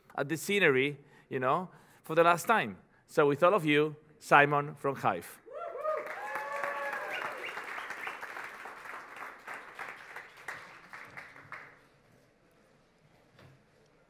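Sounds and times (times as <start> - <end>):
audience applauding: 5.7 - 11.9.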